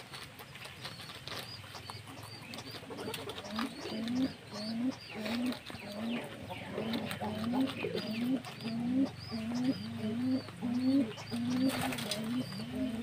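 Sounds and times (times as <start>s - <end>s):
guinea pigs chewing cabbage: 0.0s - 13.0s.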